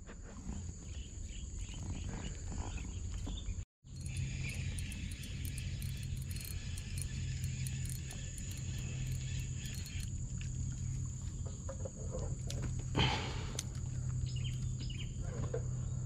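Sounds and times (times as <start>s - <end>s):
high-pitched insect chorus: 3.9s - 11.6s
low hum: 3.9s - 15.2s.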